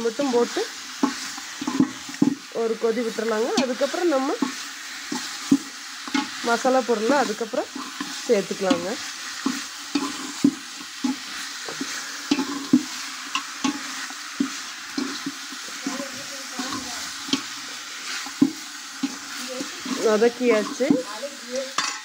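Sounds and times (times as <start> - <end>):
chicken sizzling in oil: 0.0 - 22.0
spoon scraping and clinking pot: 7.2 - 17.6, 18.2 - 21.1, 21.7 - 22.0.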